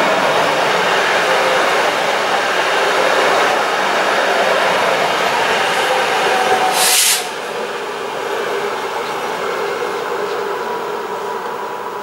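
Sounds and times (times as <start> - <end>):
train wheels rumbling on rail: 0.0 - 12.0
sharp hiss: 6.7 - 7.4.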